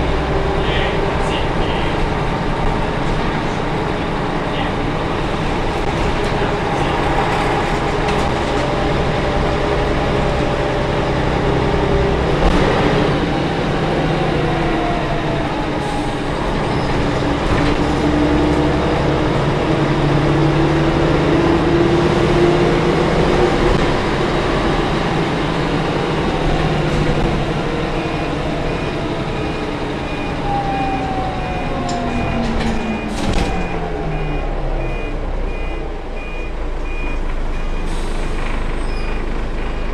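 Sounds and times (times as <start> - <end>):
diesel bus engine: 0.0 - 39.9
high beeping: 28.0 - 37.9.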